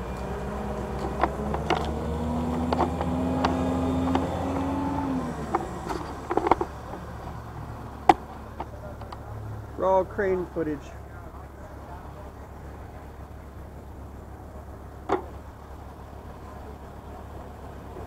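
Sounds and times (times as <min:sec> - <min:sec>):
diesel engine running: 0:00.0 - 0:18.0
sharp clicks and knocks: 0:00.7 - 0:04.6, 0:05.4 - 0:07.4, 0:08.0 - 0:09.3.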